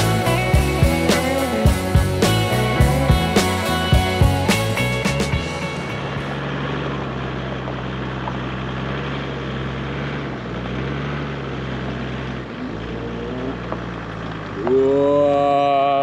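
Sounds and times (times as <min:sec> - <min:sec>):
diesel engine running: 0:00.0 - 0:16.0
truck crawling over loose rocks: 0:06.0 - 0:15.3.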